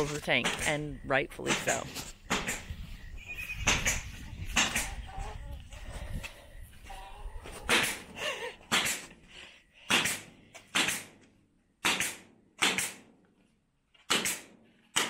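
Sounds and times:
nail gun firing into wood: 9.9 - 11.2, 11.8 - 13.1, 14.1 - 15.0.

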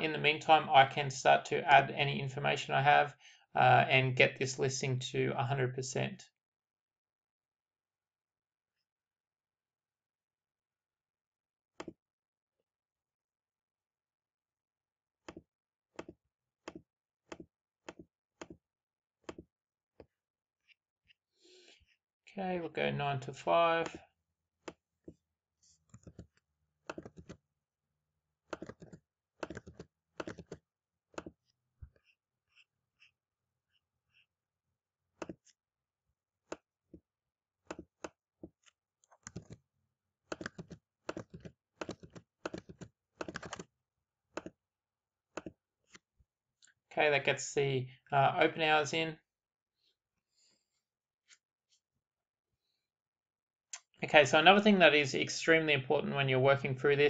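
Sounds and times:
mouse and keyboard clicking: 26.9 - 27.4, 28.5 - 30.6, 39.1 - 39.6, 40.3 - 43.6.

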